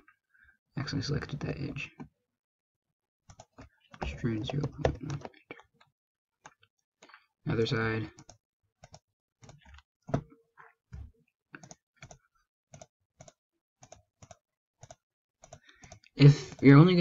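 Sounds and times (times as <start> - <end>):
computer mouse and keyboard clicking: 3.3 - 5.7, 8.2 - 9.9, 11.6 - 16.8.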